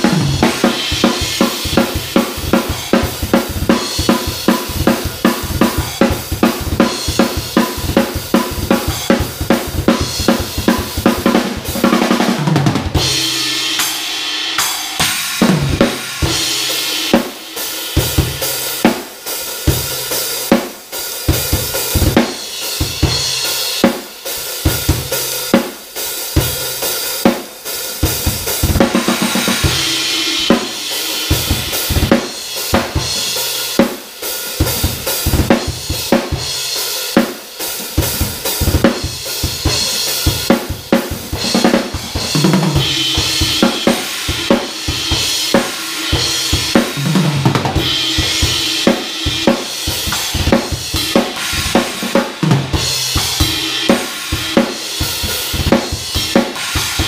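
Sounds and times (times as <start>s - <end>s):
drum kit playing: 0.0s - 57.0s
crash cymbal washes: 13.0s - 19.6s, 28.9s - 33.7s, 42.8s - 55.6s.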